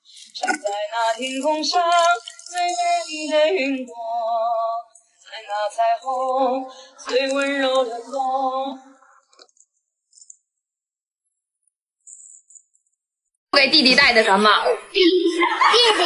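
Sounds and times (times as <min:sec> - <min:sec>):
person singing: 0:00.0 - 0:09.1.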